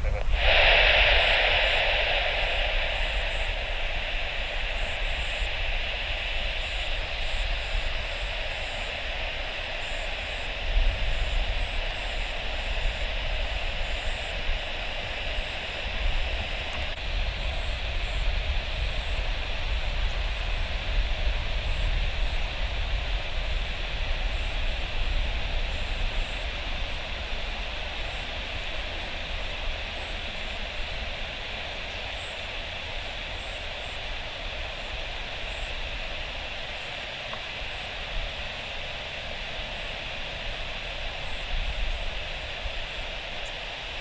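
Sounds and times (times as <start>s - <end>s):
low rumble: 0.0s - 23.0s
jet airliner engine roar: 0.0s - 44.0s.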